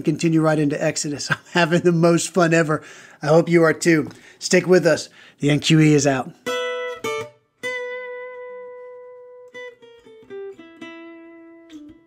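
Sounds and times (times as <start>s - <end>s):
guitar chord ringing: 6.4s - 12.0s
plucked guitar notes: 6.4s - 12.0s.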